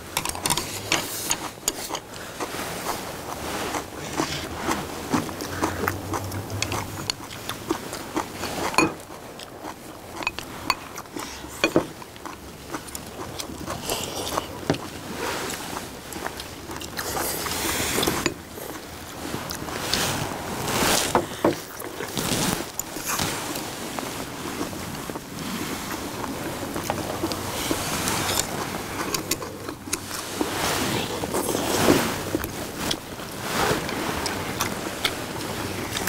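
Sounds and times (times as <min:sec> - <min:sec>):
slurping stew: 0:00.0 - 0:36.0
chewing: 0:00.2 - 0:36.0
utensils clicking on ceramic bowls: 0:08.5 - 0:09.0.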